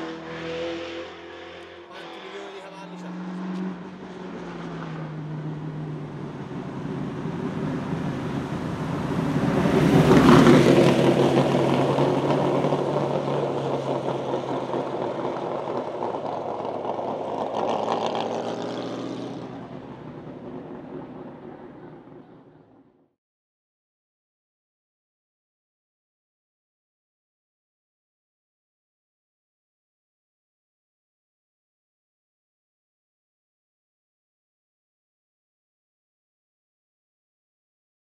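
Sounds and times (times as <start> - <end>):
race car engine passing: 0.0 - 22.9.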